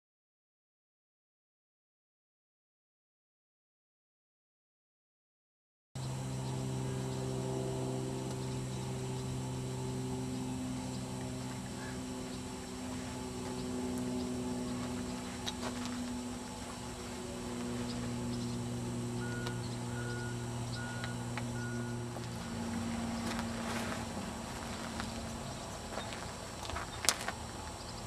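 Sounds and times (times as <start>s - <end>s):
low mechanical hum: 6.0s - 28.0s.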